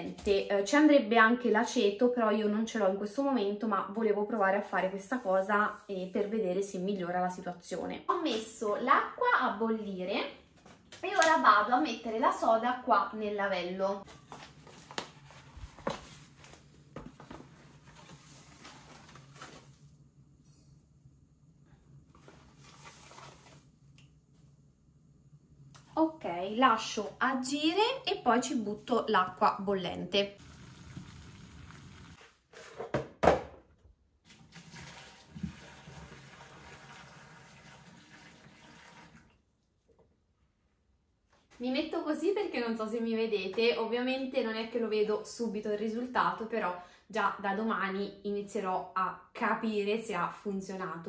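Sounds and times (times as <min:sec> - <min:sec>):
paper bag rustling: 0:14.1 - 0:20.0, 0:22.2 - 0:23.7
water pouring into sink drain: 0:30.4 - 0:32.2, 0:34.3 - 0:39.5.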